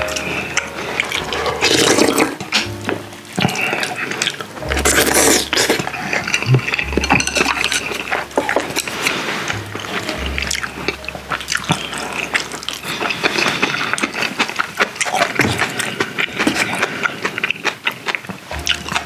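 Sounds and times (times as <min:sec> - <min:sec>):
wet chewing clicks: 0:00.0 - 0:19.0
loud slurps: 0:01.0 - 0:02.4, 0:04.8 - 0:06.8.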